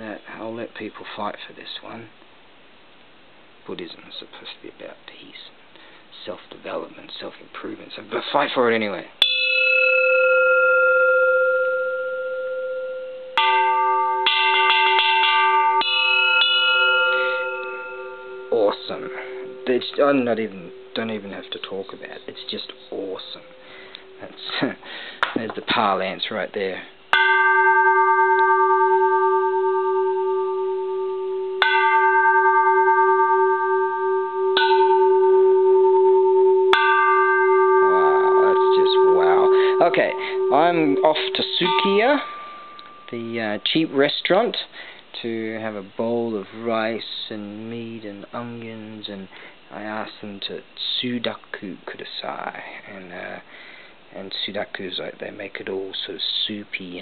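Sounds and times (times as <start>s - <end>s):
temple bell ringing: 9.2s - 25.4s, 27.1s - 44.4s
low wavering hum: 27.6s - 43.2s.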